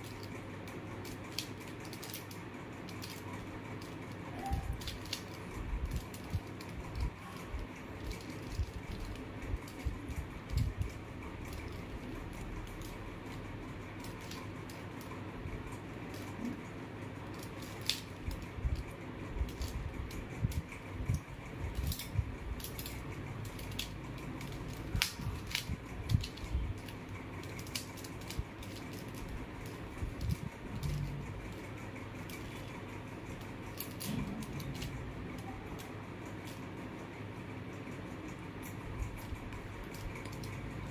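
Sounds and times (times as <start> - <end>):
plastic puzzle cube clicking: 0.0 - 7.1, 7.9 - 13.4, 14.0 - 15.1, 15.8 - 16.6, 17.2 - 20.7, 21.7 - 31.6
steady low hum: 0.0 - 40.9.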